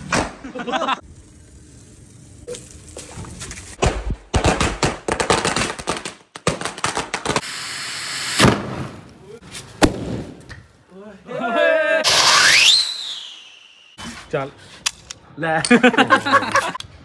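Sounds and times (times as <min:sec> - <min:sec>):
firecrackers cracking: 0:00.0 - 0:10.6, 0:12.0 - 0:13.8.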